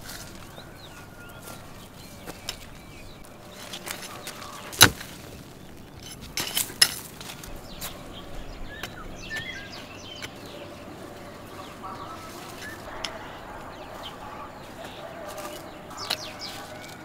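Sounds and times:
small birds chirping: 0:00.0 - 0:17.0
hoe chopping into dry soil: 0:03.6 - 0:07.5.

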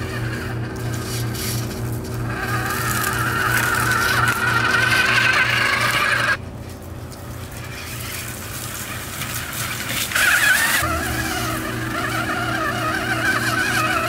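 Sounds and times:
toy car motor whining: 0:00.0 - 0:06.4, 0:07.7 - 0:14.0.

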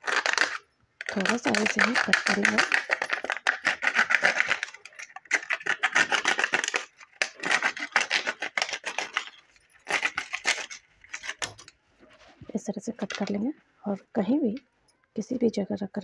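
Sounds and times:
hacksaw sawing plastic bottle: 0:00.0 - 0:11.6.

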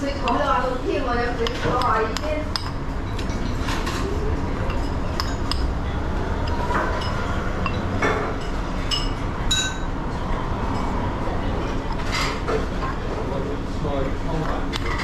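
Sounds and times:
restaurant hubbub: 0:00.0 - 0:15.0
tableware clinking: 0:01.3 - 0:05.8, 0:06.4 - 0:10.0.

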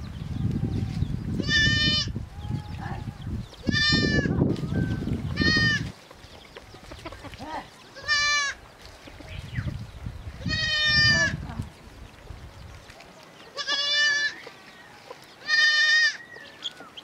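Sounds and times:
goats bleating: 0:03.6 - 0:04.4, 0:08.0 - 0:08.6, 0:10.4 - 0:11.4, 0:13.5 - 0:14.4, 0:15.4 - 0:16.2.

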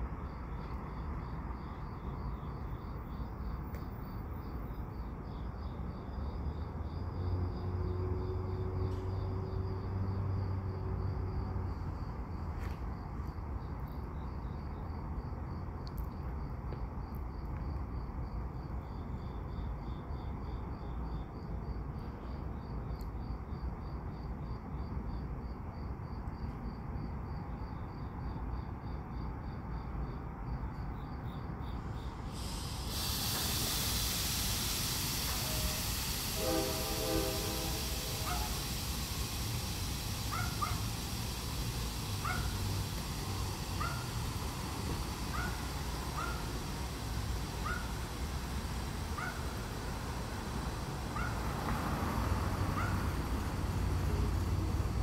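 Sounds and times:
crickets chirping: 0:00.0 - 0:55.0
steady hiss: 0:31.4 - 0:55.0
locomotive low rumble: 0:31.5 - 0:55.0.

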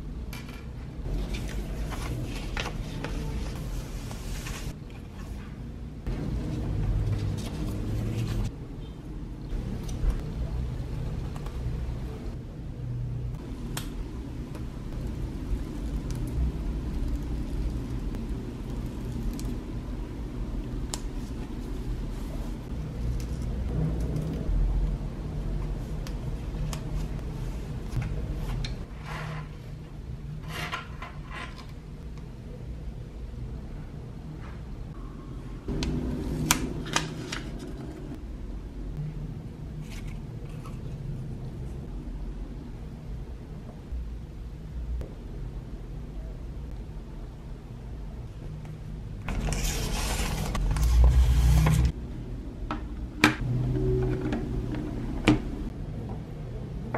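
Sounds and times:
low room hum: 0:00.0 - 0:56.9
steady low rumble: 0:05.8 - 0:28.9.

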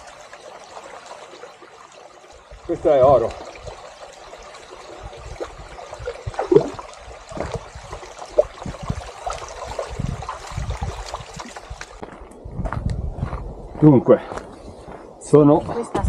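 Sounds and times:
water trickling: 0:00.0 - 0:12.2
knocks and low thumps: 0:06.2 - 0:06.8.

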